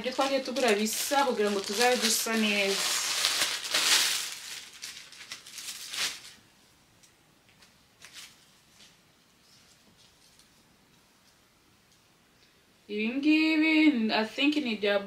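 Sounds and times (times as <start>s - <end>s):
plastic packaging rustling: 0.0s - 6.4s, 7.6s - 9.0s.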